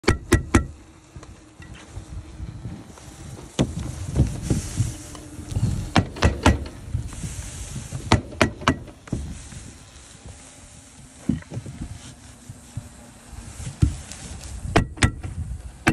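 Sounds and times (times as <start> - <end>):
pneumatic stapler shots: 0.0 - 0.8, 5.9 - 6.8, 8.0 - 9.0, 14.7 - 15.9
roof underlayment rustling: 0.0 - 15.9.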